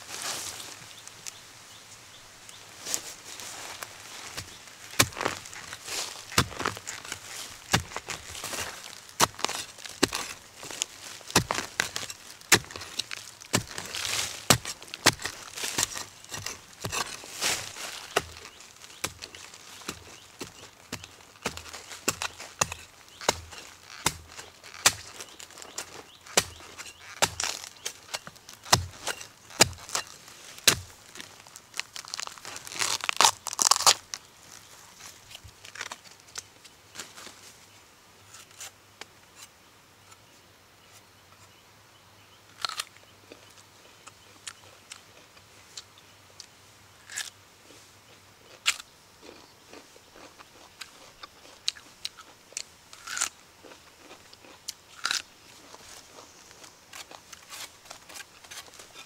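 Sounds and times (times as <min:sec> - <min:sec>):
husk crackling and tearing: 0:02.9 - 0:34.3
hoe chopping into soil: 0:04.3 - 0:31.0.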